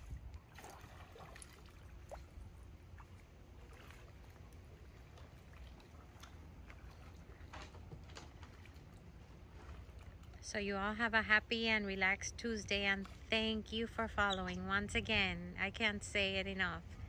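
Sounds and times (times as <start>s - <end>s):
paddle splashing in water: 0.0s - 10.4s
low steady rumble: 0.0s - 17.0s.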